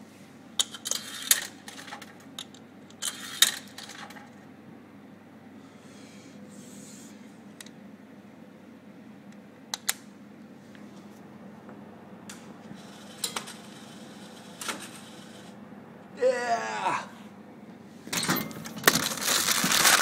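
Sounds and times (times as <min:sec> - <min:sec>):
coins clinking in vending machine: 0:00.6 - 0:04.4, 0:13.0 - 0:15.5, 0:18.1 - 0:20.0.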